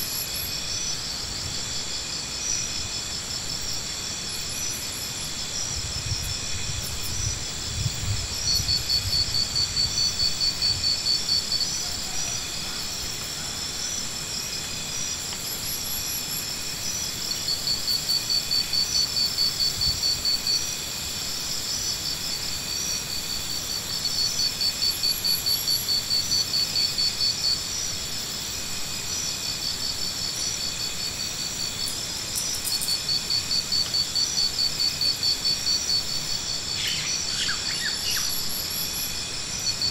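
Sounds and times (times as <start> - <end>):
insect fast-pulsed trill: 0.0 - 39.9
insects ringing: 8.4 - 39.9.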